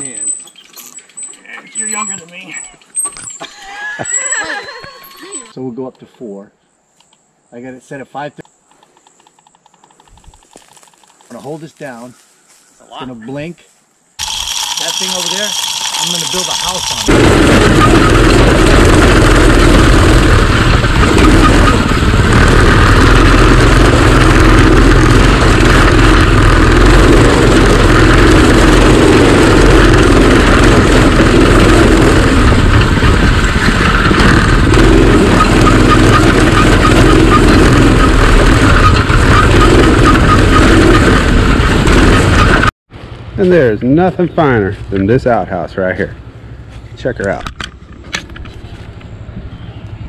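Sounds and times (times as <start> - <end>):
go-kart engine running: 14.2 - 42.7.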